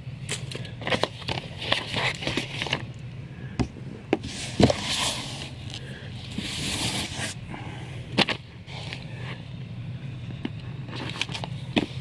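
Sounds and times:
cardboard sliding and rustling: 4.2s - 7.4s.

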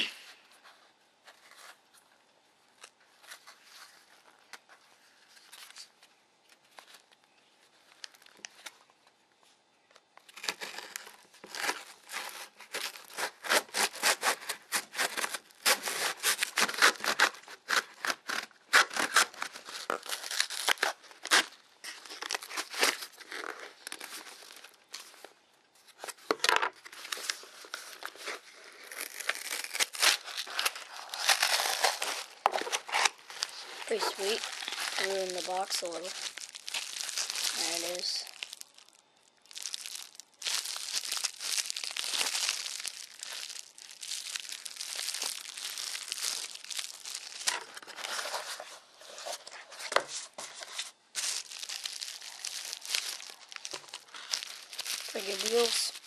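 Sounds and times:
cardboard box being torn open: 10.3s - 24.6s, 27.0s - 38.6s, 51.2s - 55.8s.

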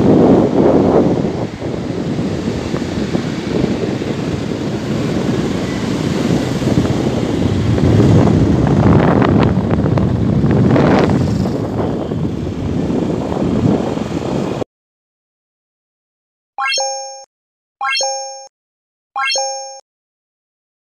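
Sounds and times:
wind buffeting microphone: 0.0s - 14.6s
motorbike and road rumble: 0.0s - 14.7s.

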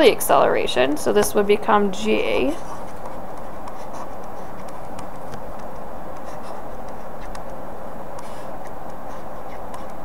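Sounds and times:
stylus scratching on a tablet: 2.0s - 10.0s.

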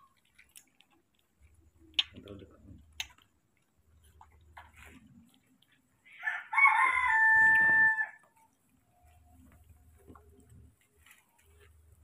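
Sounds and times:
rooster crowing: 6.1s - 8.3s.

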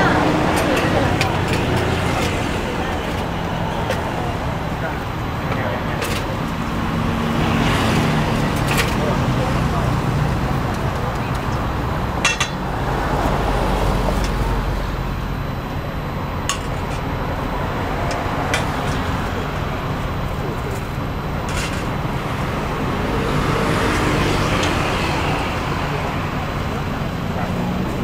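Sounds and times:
road traffic noise: 0.0s - 28.0s.

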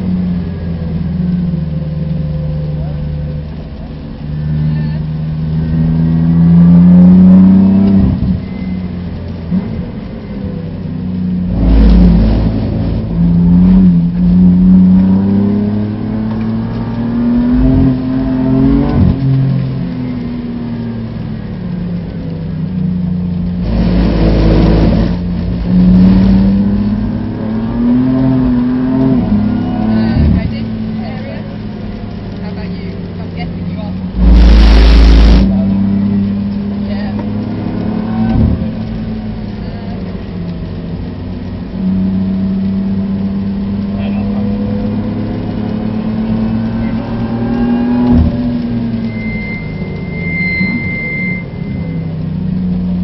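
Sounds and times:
car engine revving: 0.0s - 53.0s
loud rush of noise: 34.0s - 36.2s.

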